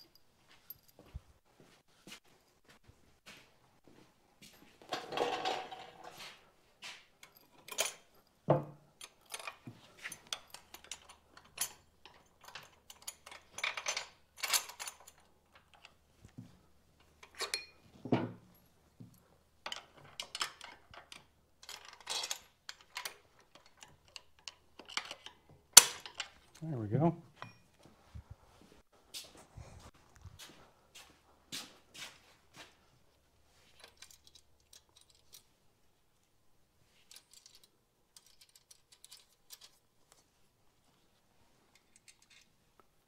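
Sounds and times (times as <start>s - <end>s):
metal nuts and bolts clinking: 4.9s - 6.2s, 7.2s - 16.3s, 17.0s - 26.6s, 33.7s - 35.5s, 36.9s - 39.9s, 41.7s - 42.6s.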